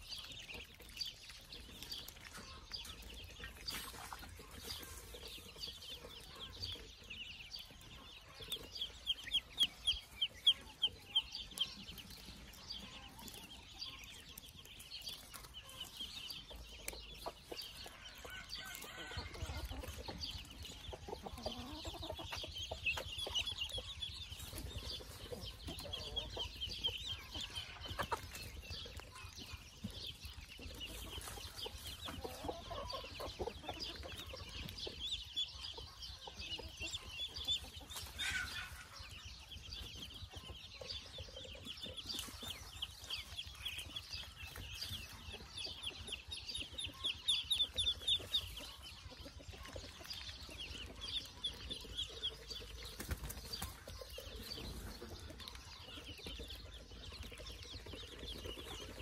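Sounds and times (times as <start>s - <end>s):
ducklings peeping: 0.0s - 59.0s.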